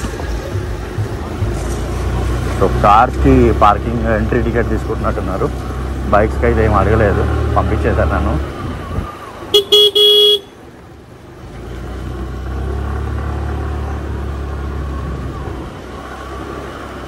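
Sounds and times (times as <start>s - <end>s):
motorbike engine rumble: 0.0s - 17.0s
road noise: 0.0s - 17.0s
vehicle horn beeping: 9.5s - 10.6s.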